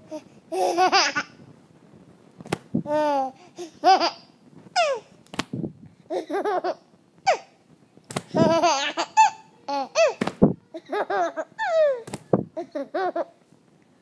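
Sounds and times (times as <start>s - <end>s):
baby laughing: 0.1s - 1.4s, 2.9s - 5.1s, 6.1s - 7.5s, 8.3s - 13.4s.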